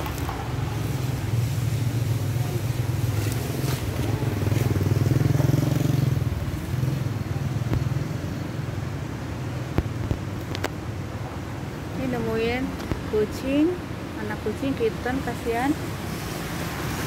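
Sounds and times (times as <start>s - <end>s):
passing vehicle engine: 0.0s - 9.0s.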